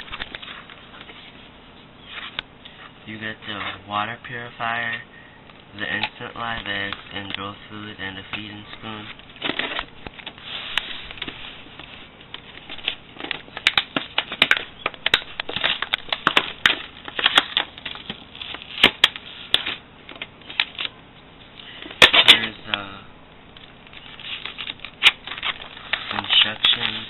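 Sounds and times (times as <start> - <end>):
plastic packaging crackling: 8.9 - 21.0, 23.5 - 27.0.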